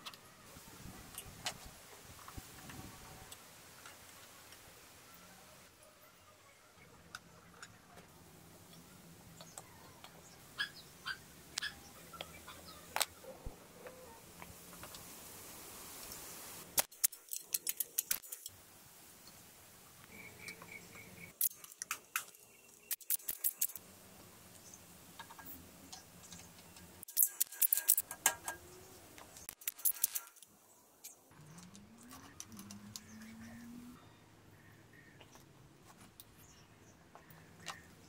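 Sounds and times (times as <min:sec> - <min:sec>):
metallic clicks of tools and parts: 0:16.8 - 0:18.5, 0:21.4 - 0:23.8, 0:25.2 - 0:28.7, 0:29.3 - 0:33.3
faint hum rising in pitch: 0:31.4 - 0:34.2.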